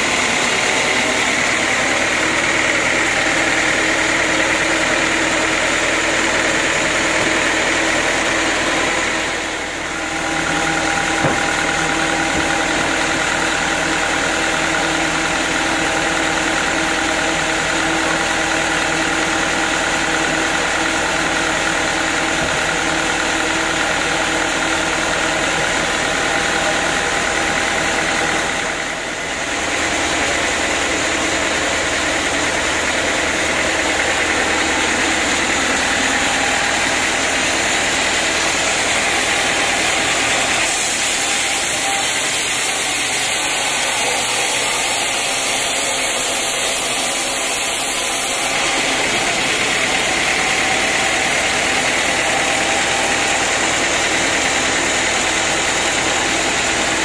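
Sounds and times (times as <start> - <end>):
band saw running: 0.0 - 57.0
short knock: 11.1 - 12.6.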